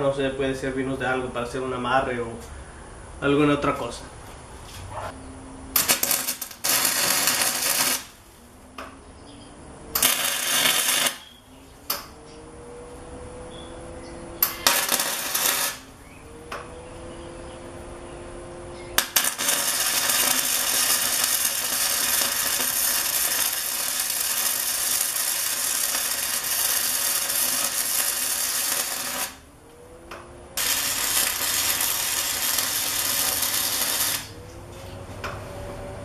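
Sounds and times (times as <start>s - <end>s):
welder arc crackling: 5.7s - 8.2s, 9.9s - 12.2s, 14.4s - 16.7s, 18.9s - 29.5s, 30.1s - 34.6s.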